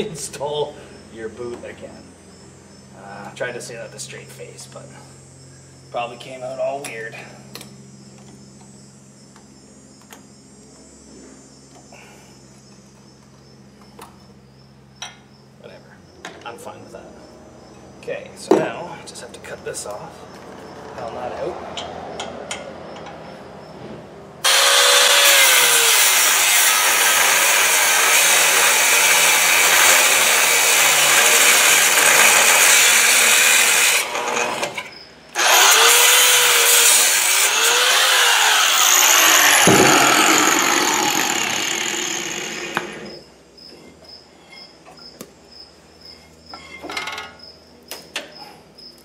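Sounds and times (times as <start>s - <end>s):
angle grinder cutting steel: 24.4s - 43.2s.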